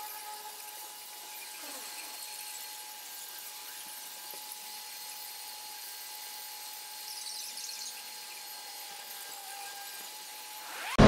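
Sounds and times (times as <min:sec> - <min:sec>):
high-pitched whine: 0:07.0 - 0:11.0.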